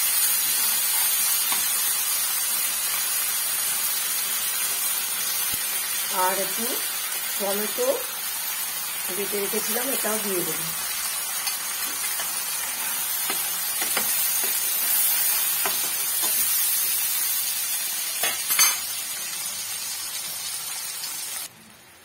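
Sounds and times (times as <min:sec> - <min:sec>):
paste sizzling in hot oil: 0:00.0 - 0:21.5
spatula scraping and tapping pan: 0:11.4 - 0:16.5.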